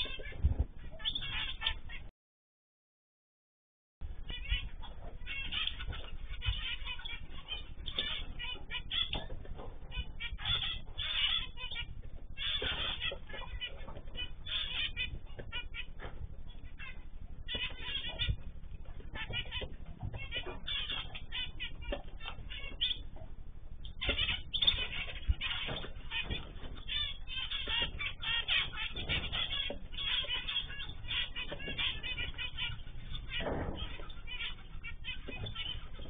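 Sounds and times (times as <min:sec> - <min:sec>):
small birds chirping: 0:00.0 - 0:02.1, 0:04.0 - 0:36.0
steady low rumble: 0:04.0 - 0:36.0.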